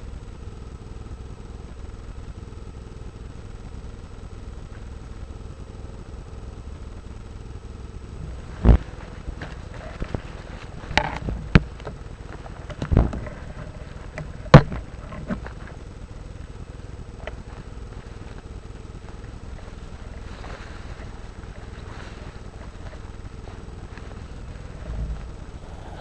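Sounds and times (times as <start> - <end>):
wind rumble: 25.4 - 26.0.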